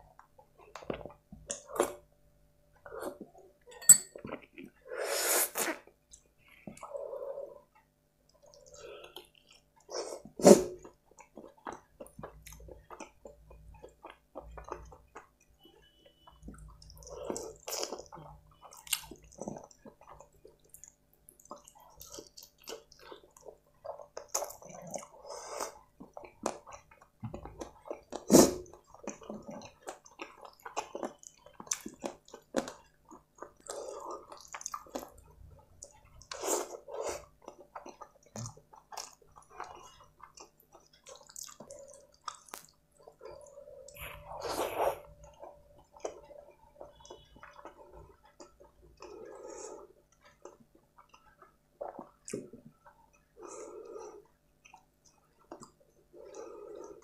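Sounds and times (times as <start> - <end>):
person chewing: 5.4 - 57.0.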